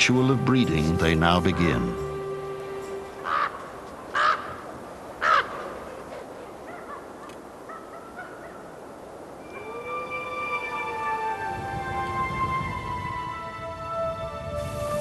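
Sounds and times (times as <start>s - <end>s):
soundtrack music with held notes: 0.0s - 4.0s, 9.4s - 15.0s
crow cawing: 3.2s - 5.8s.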